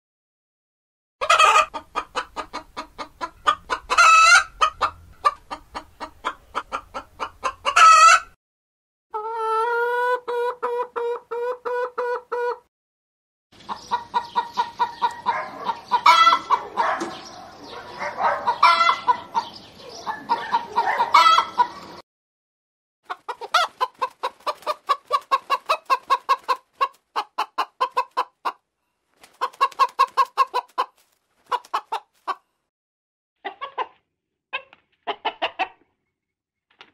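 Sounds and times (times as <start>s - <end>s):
hens squawking: 1.2s - 8.3s, 13.7s - 22.0s, 23.1s - 28.6s, 29.2s - 32.4s
hens clucking: 1.2s - 8.4s, 9.1s - 12.7s, 13.6s - 22.0s, 23.1s - 28.6s, 29.2s - 32.4s, 33.4s - 35.8s.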